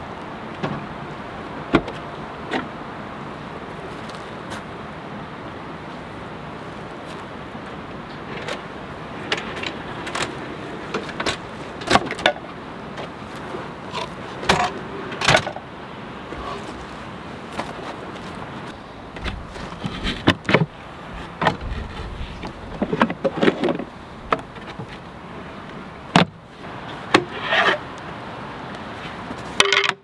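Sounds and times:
river rushing: 0:00.0 - 0:29.9
drawers clattering on metal slides: 0:08.2 - 0:15.6, 0:16.3 - 0:16.8.

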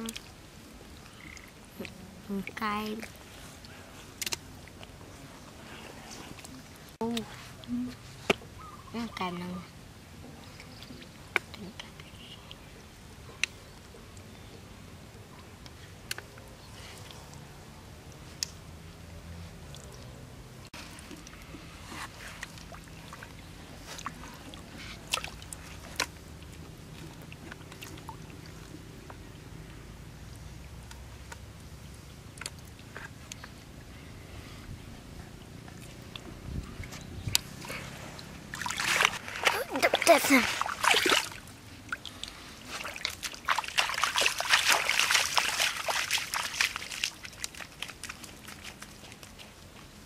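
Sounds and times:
hands squelching in mud and water: 0:20.8 - 0:29.4, 0:35.7 - 0:50.0.

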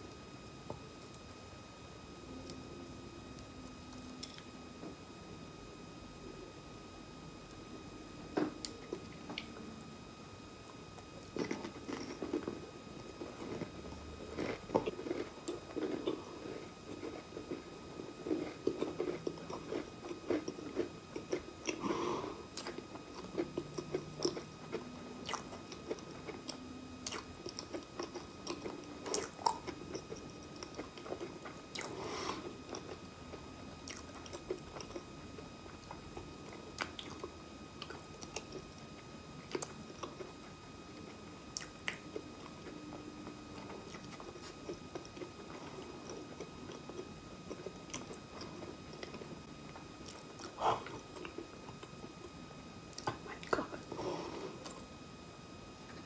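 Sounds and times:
close chewing with wet smacks: 0:22.6 - 0:31.9, 0:33.9 - 0:35.0, 0:36.8 - 0:38.7.

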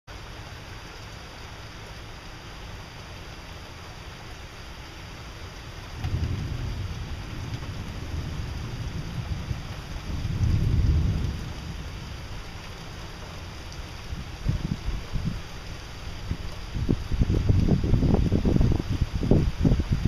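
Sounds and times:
steady rain falling: 0:00.1 - 0:20.0
thunder rumbling: 0:05.8 - 0:20.0.

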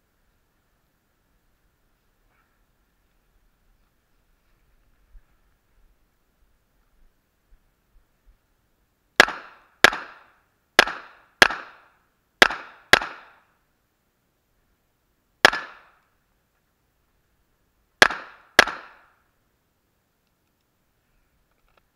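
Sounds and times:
pistol shots: 0:09.2 - 0:13.4, 0:15.4 - 0:16.0, 0:18.0 - 0:19.1.

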